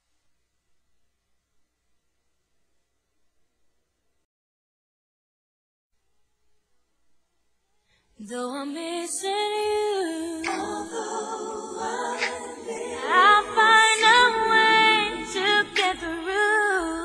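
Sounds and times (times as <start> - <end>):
women singing in harmony: 8.2 - 17.0.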